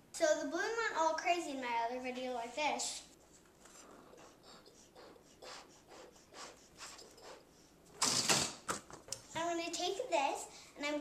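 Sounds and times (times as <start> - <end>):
breathy puffs into balloon: 3.7 - 8.2.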